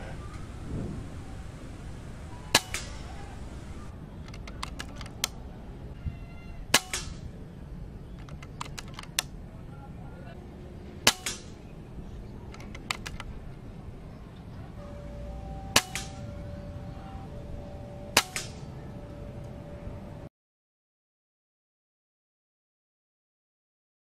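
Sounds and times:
rifle shots: 2.5 - 3.8, 6.7 - 7.3, 11.0 - 11.6, 15.7 - 16.2, 18.2 - 18.7
quiet clicks: 3.6 - 5.4, 8.2 - 9.4, 12.5 - 13.3.

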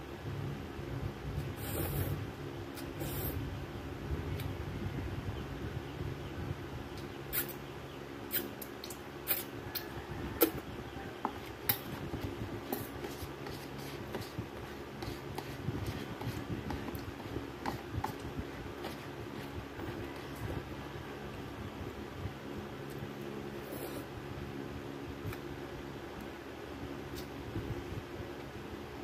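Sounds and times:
low steady hum: 0.0 - 29.0
utensil scraping paper cup: 12.6 - 18.2.

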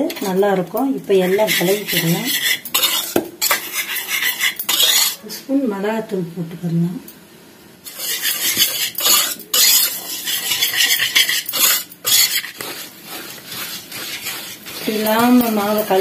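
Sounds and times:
whisk scraping steel bowl: 1.2 - 5.2, 7.9 - 16.0.

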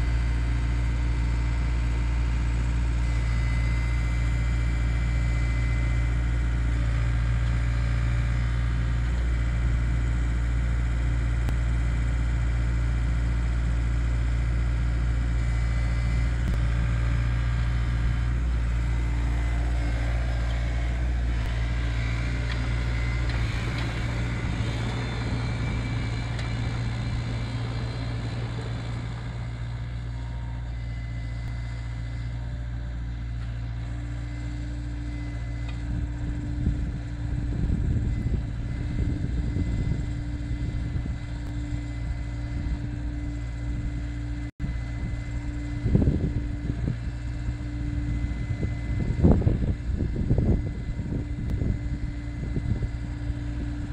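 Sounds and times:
excavator diesel engine running: 0.0 - 53.9
hydraulic auger drilling into soil: 17.9 - 30.7.

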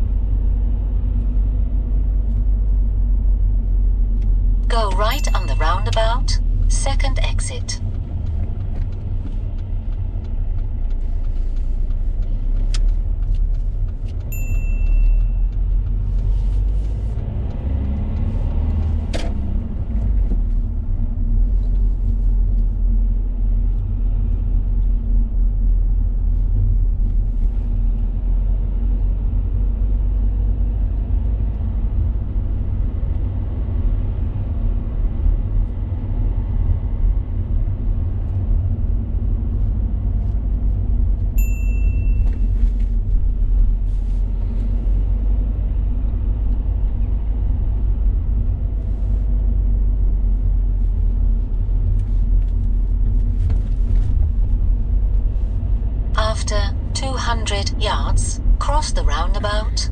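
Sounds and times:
car cabin road rumble: 0.0 - 59.9
short beep: 4.8 - 7.7.

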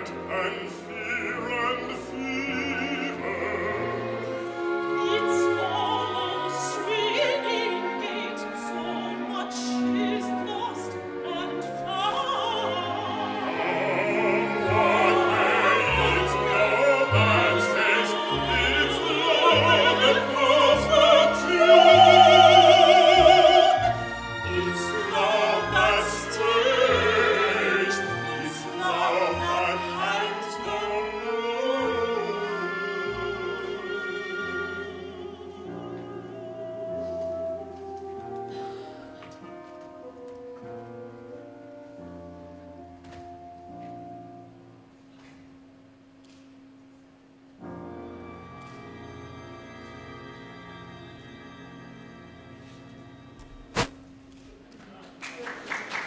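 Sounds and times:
orchestral strings: 0.0 - 44.8, 47.6 - 54.4
woman singing opera: 0.2 - 38.5.

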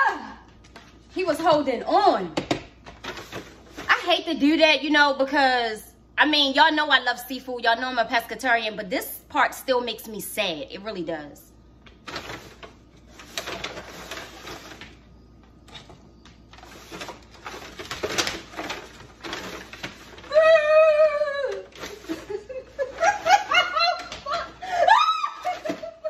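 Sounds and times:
paper bag rustling: 12.0 - 15.0, 15.8 - 20.7
woman squealing: 20.3 - 21.8, 24.3 - 26.0
laughter: 22.0 - 24.8.

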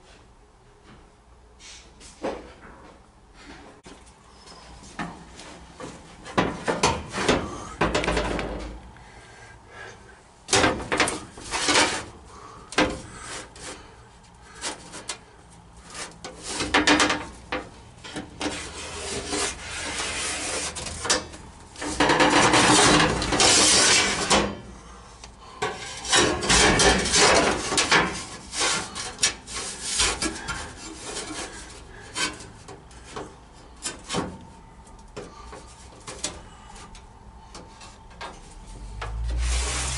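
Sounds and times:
metal scraping on metal: 18.0 - 24.6, 25.6 - 33.2, 38.5 - 39.9.

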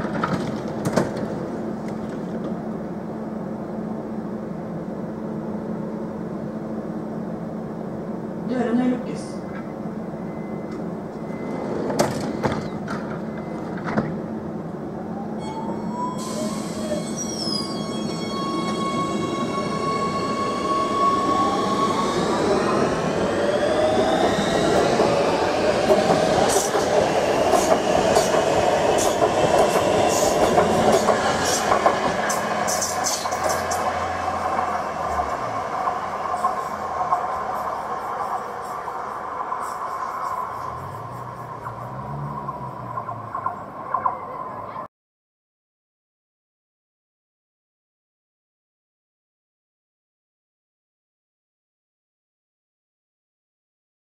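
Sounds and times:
train doors shutting: 0.0 - 2.7, 9.4 - 14.4, 15.4 - 44.1.

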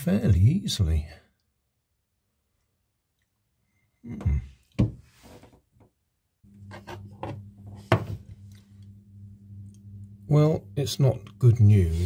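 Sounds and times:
steady low hum: 6.4 - 12.0
knocks and scrapes on pipes: 6.6 - 8.3.

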